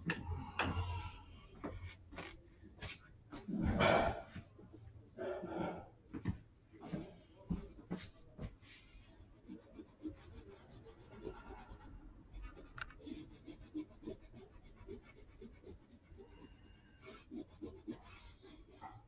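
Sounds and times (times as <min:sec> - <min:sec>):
rubber rubbing on paper: 0:08.0 - 0:19.0.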